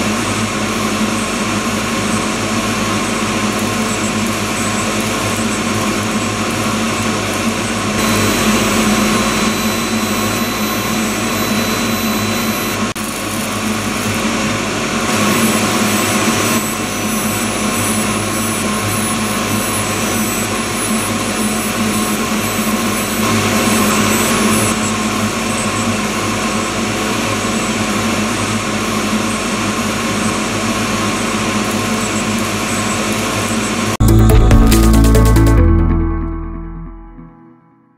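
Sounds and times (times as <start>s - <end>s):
machine whirring hiss: 0.0s - 34.0s
low hum: 34.0s - 37.7s.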